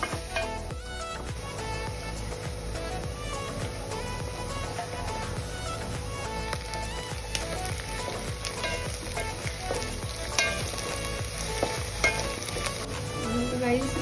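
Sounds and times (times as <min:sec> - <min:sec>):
onions sizzling in oil: 0:00.0 - 0:14.0
spatula scraping and knocking pot: 0:07.4 - 0:13.0.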